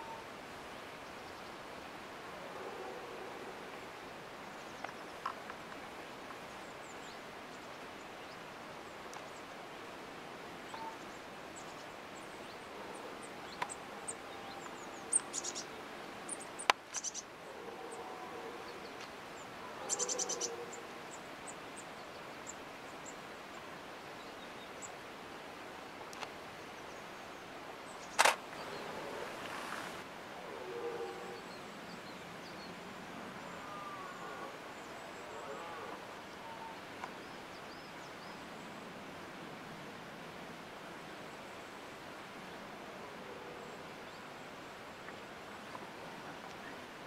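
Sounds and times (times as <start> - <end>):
outdoor hush: 27.6 - 31.5
camera shutter clicks: 28.2 - 28.4.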